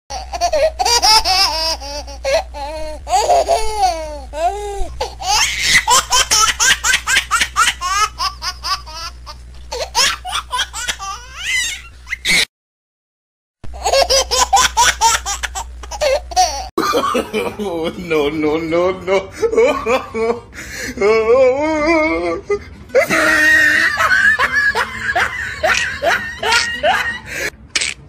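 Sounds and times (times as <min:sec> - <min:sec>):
person laughing high-pitched: 0:21.0 - 0:27.5.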